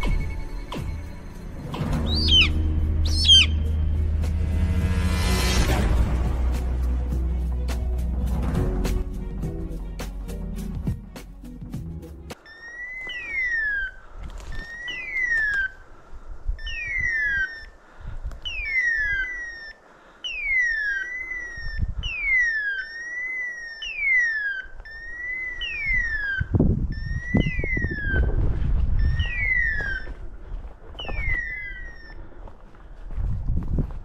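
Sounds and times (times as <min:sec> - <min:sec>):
wind rumble on microphone: 0:21.6 - 0:22.3, 0:25.8 - 0:34.0.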